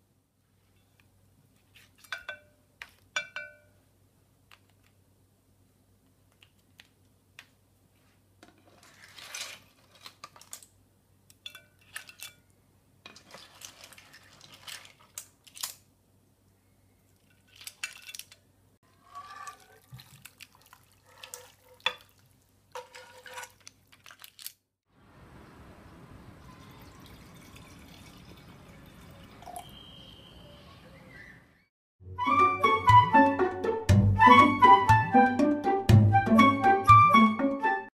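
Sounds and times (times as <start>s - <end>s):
spatula scraping frying pan: 18.9s - 20.0s, 22.7s - 23.7s
small wet splashes: 19.6s - 22.4s.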